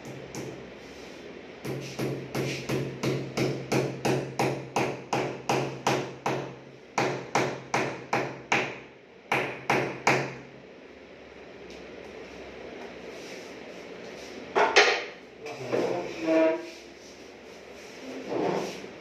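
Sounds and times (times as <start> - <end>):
hammer tapping a nail: 1.6 - 10.4.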